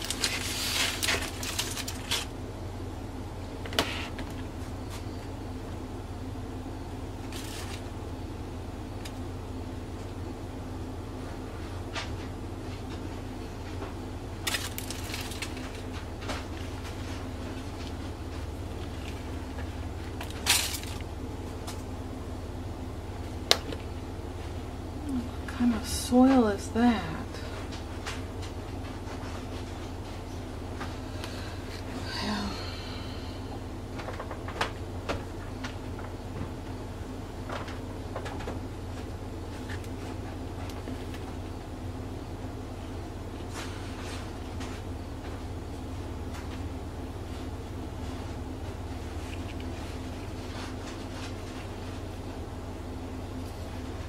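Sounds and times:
paper crinkling and rustling: 0.0 - 2.4, 7.2 - 7.9, 14.4 - 21.1
steady low hum: 0.0 - 54.0.

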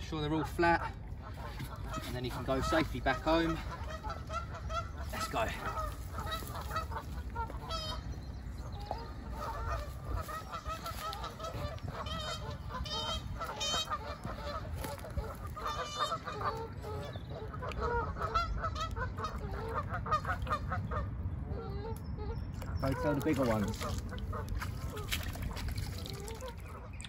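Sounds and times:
geese honking: 0.2 - 27.0.

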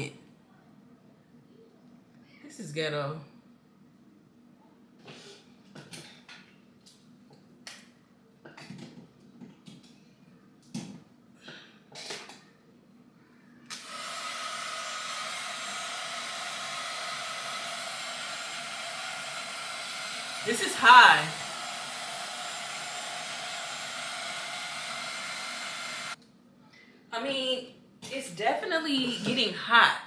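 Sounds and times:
blow dryer running: 13.7 - 26.2.

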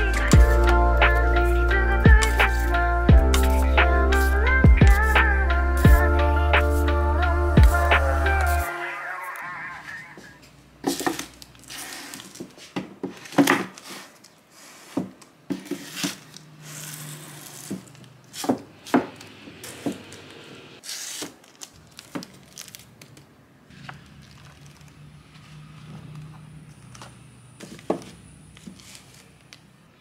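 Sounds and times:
books sliding and rubbing: 11.6 - 18.6, 23.7 - 26.2, 27.6 - 29.4.

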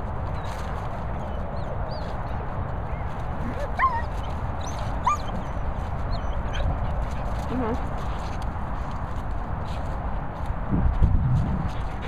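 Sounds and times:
steady low rumble: 0.0 - 12.0
dog yipping: 3.0 - 6.8.

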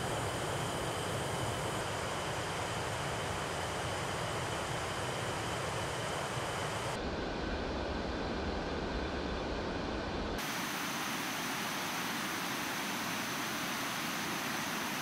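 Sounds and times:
synthesized jet engine hiss: 10.4 - 15.0.

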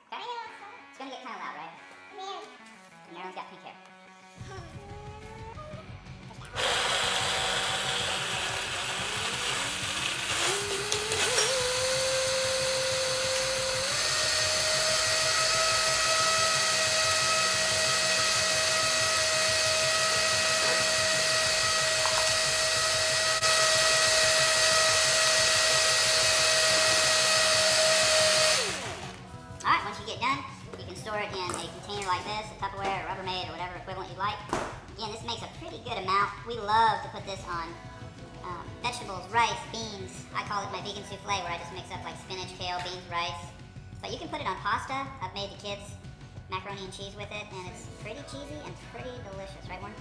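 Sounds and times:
blender motor running: 6.4 - 29.2.

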